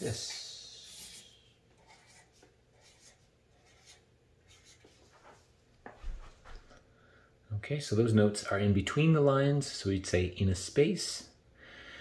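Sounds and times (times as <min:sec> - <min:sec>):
pen scratching on paper: 0:00.9 - 0:05.4.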